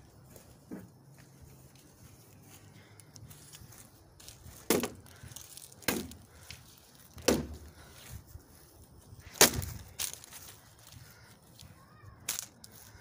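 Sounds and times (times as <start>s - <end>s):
plastic fan being smashed: 4.6s - 5.0s, 5.8s - 6.2s, 7.1s - 7.6s, 9.3s - 10.2s.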